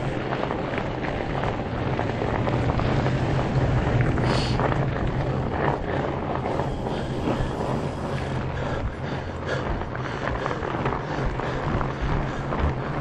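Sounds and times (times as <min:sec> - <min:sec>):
steady low hum: 0:00.0 - 0:13.0
tyres rolling on icy pavement: 0:00.0 - 0:13.0
wind buffeting microphone: 0:00.0 - 0:13.0.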